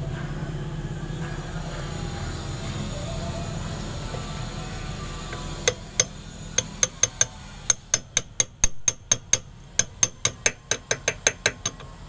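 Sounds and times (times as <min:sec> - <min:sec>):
hammer tapping metal bar: 0:05.3 - 0:11.9.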